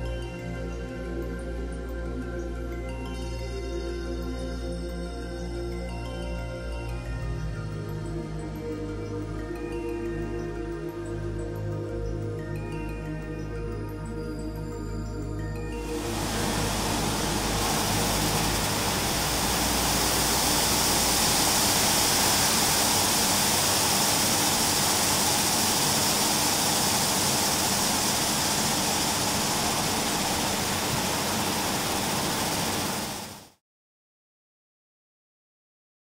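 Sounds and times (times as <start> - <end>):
flip-dot display rattling hiss: 15.9 - 33.4.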